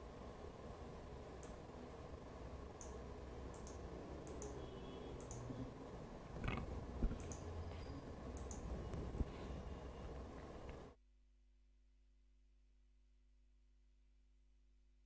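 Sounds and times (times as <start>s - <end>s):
low steady hum: 0.0s - 11.0s
faint high-pitched clicks: 1.4s - 1.6s, 2.8s - 4.6s, 5.2s - 5.5s, 7.2s - 7.5s, 8.4s - 9.0s.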